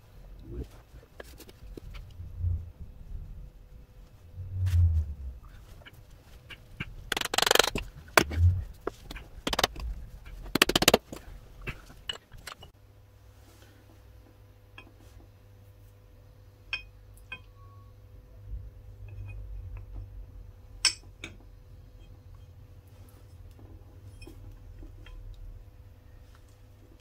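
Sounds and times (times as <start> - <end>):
knocks and thumps: 6.8 - 12.6
squeaky rubbery rasps: 7.1 - 9.7
metal spring plates clicking: 7.1 - 11.2.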